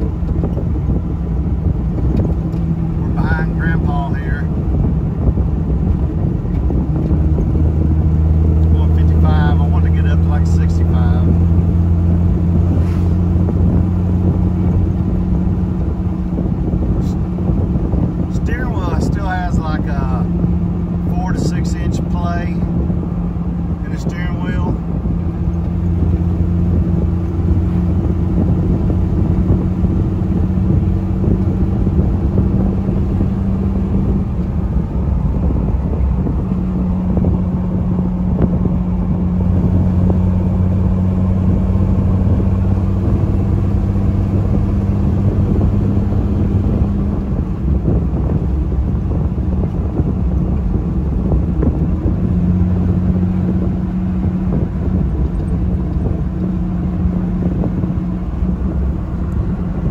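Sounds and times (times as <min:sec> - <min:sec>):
tyre and wind noise: 0:00.0 - 0:10.2, 0:10.9 - 0:59.9
car engine droning: 0:00.0 - 0:59.9.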